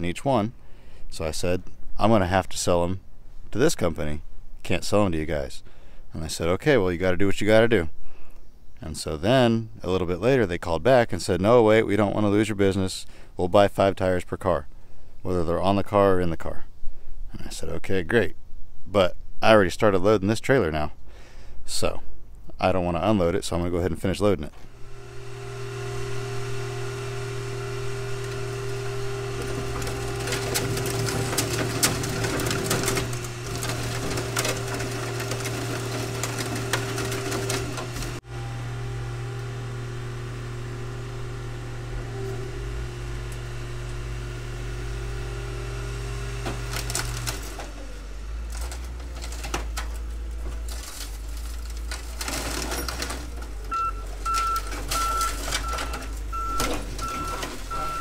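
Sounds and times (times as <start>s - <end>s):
heavy machinery engine hum: 24.5s - 58.0s
metal clunks and scrapes: 28.2s - 38.2s, 48.5s - 58.0s.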